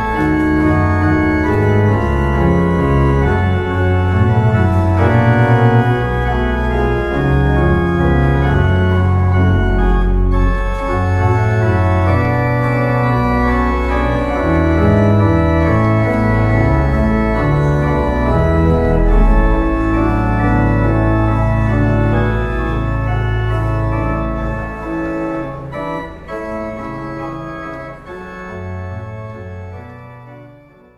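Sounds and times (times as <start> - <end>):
pipe organ chords: 0.0 - 30.9.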